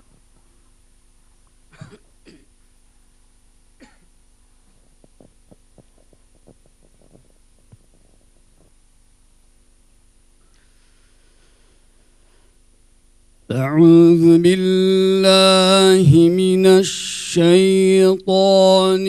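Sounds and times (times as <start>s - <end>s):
faint steady hum: 0.0s - 19.0s
person coughing: 1.7s - 2.5s, 3.8s - 4.1s.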